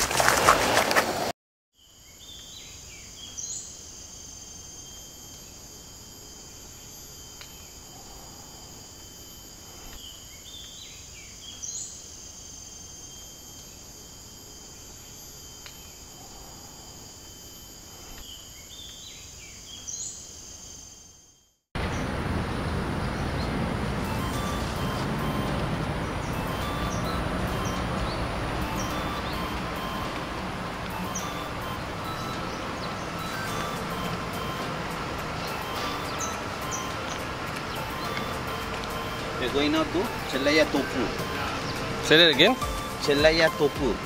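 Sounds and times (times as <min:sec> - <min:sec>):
burst of insect chirps: 0:01.8 - 0:21.6
high-pitched insect trilling: 0:01.8 - 0:21.6, 0:24.0 - 0:44.0.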